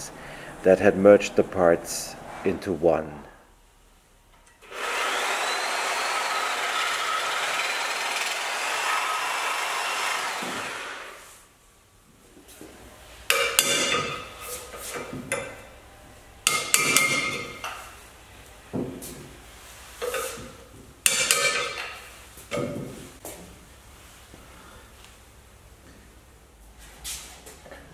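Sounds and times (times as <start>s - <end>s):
power saw cutting metal: 4.6s - 11.3s.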